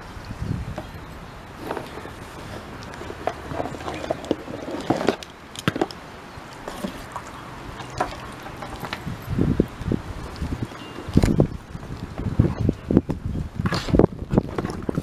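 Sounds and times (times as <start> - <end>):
buckles clicking and knocking: 1.6 - 6.0, 6.6 - 9.3.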